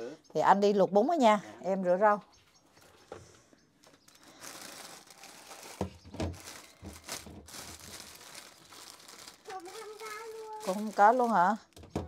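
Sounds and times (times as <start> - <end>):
plastic bag crinkling: 3.8 - 11.9
dull knocks: 11.8 - 12.0.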